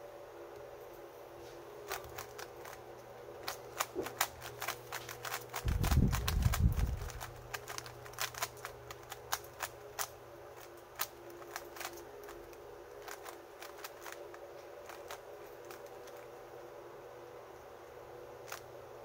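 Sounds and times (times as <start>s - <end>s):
puzzle cube layers clicking: 3.4s - 10.1s.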